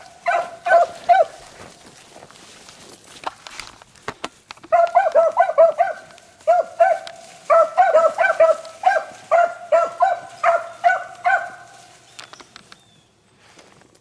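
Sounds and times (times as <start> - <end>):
dogs barking: 0.0 - 1.6, 4.7 - 12.0.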